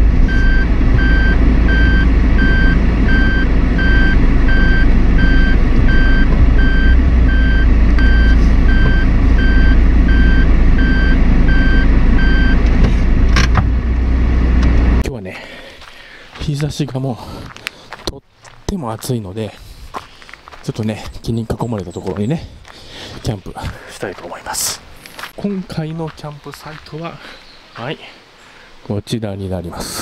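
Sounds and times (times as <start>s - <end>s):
reverse warning beeper: 0.0s - 12.7s
low rumble of moving car: 0.0s - 15.0s.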